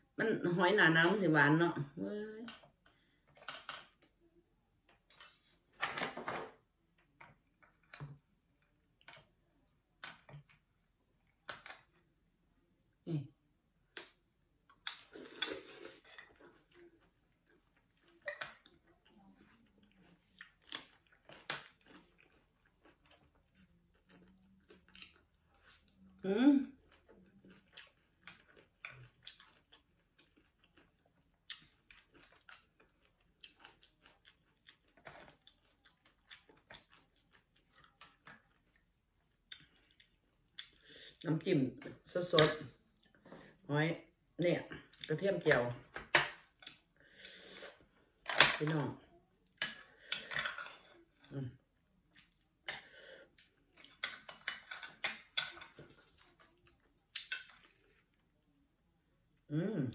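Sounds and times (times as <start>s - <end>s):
person chewing: 13.9s - 26.1s, 26.7s - 41.2s, 49.4s - 58.2s.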